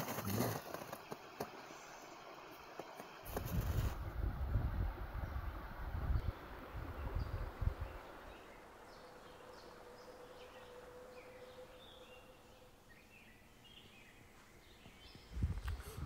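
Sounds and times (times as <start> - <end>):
faint steady hum: 0.0 - 16.0
outdoor hiss: 0.0 - 16.0
small birds chirping: 5.2 - 16.0.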